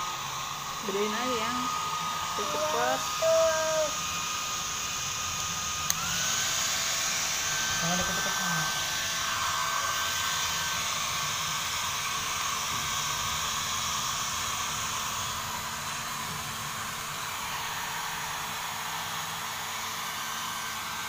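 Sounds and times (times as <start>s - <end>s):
hair dryer blowing: 0.0s - 21.0s.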